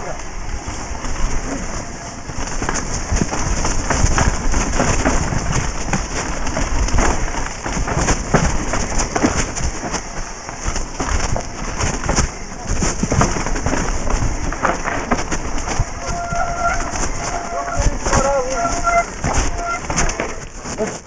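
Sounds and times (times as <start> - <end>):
wind rumble on microphone: 0.0 - 20.9
mountain bike clattering: 0.0 - 21.0.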